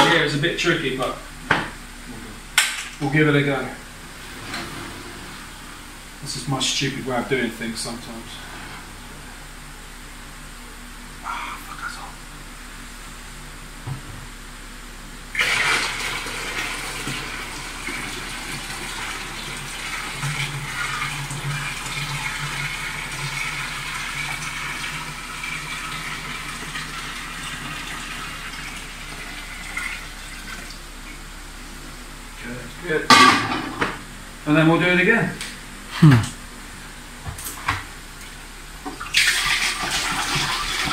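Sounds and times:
liquid pouring into bucket: 15.4s - 30.8s, 38.9s - 40.9s.

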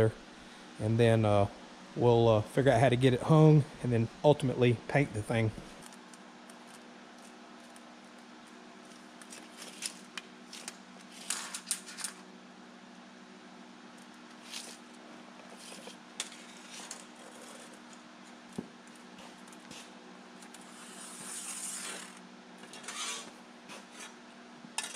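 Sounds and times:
steady low hum: 0.0s - 24.9s
scratchy scrapes on steel: 15.6s - 17.8s, 20.6s - 24.2s.

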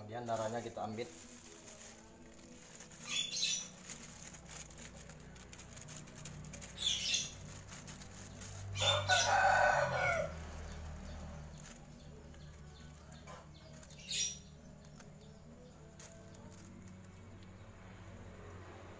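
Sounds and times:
rooster crowing: 8.8s - 10.8s.

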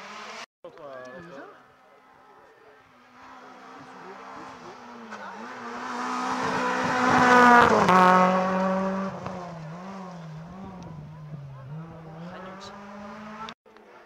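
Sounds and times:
rally car engine passing: 2.8s - 13.6s.

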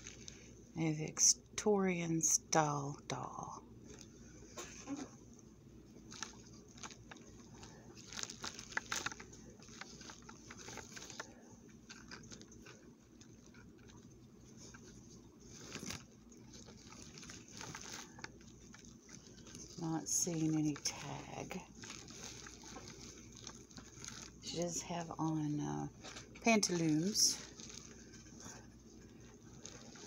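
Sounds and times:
bubble wrap crinkling: 0.0s - 0.6s, 3.1s - 30.0s
small irregular clicks: 5.4s - 24.6s.

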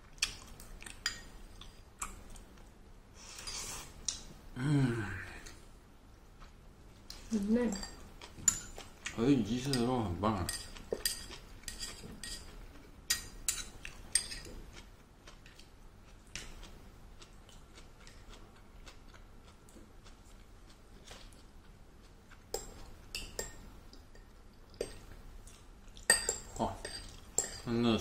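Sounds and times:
metal chopsticks clinking on bowl: 9.6s - 12.5s.

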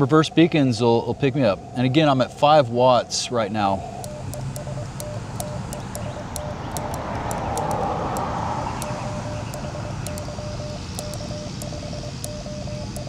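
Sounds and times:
broad rushing noise: 3.7s - 13.0s
morse code tone: 3.8s - 13.0s
light clicks: 4.0s - 13.0s.

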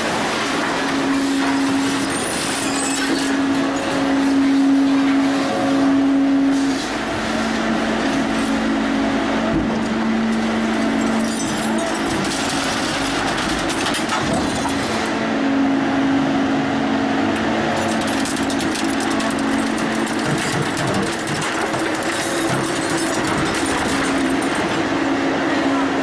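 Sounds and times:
blade crackling on scrap metal: 10.3s - 15.2s, 17.4s - 24.9s.

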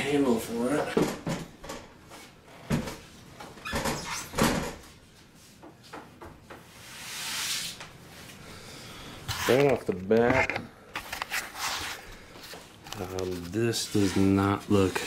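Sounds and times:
soft rustling hiss: 4.8s - 15.0s.

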